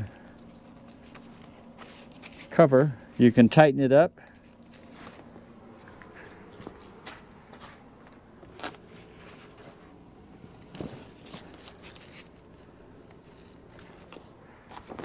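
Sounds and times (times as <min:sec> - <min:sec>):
heavy fabric rustling and scraping: 0:10.6 - 0:14.0.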